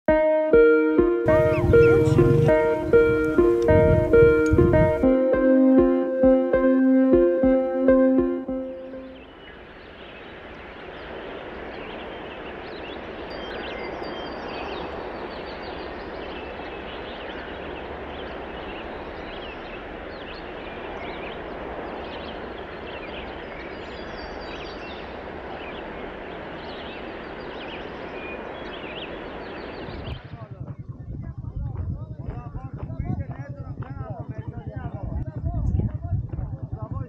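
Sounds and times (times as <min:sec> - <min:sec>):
birds chirping: 0:01.2 - 0:30.9
steady rushing background noise: 0:01.3 - 0:05.1, 0:07.2 - 0:31.2.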